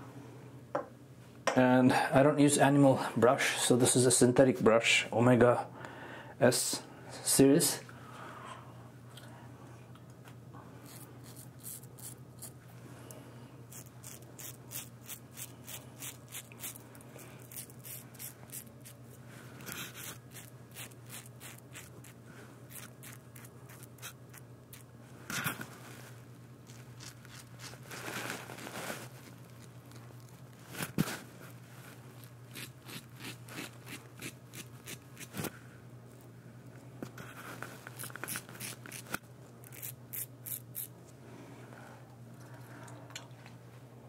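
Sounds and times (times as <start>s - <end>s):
steady low hum: 0.0s - 44.0s
razor scraping stubble: 10.8s - 12.6s, 13.7s - 25.6s, 26.6s - 31.1s, 32.1s - 35.5s, 37.8s - 40.9s.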